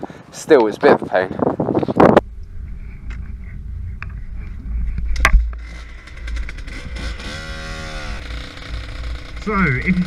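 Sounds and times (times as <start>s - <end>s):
low wind rumble on microphone: 0.0s - 9.2s.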